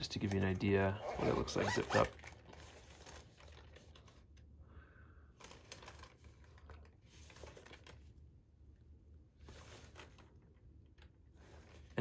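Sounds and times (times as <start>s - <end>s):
zipper pulls tapping: 1.0s - 2.2s
bag rustling and clicking: 1.0s - 4.1s.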